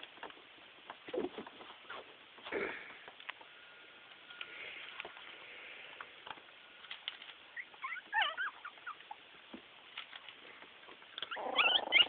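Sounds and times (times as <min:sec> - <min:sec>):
puppies squeaking: 0:07.5 - 0:09.2, 0:11.2 - 0:12.0.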